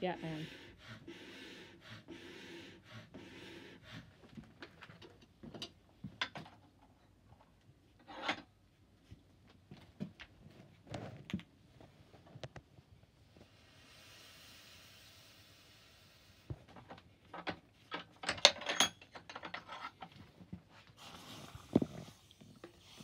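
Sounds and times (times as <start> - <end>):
hand-cranked blower whirring: 0.0 - 4.1
metal tools knocking and clinking: 17.3 - 20.1.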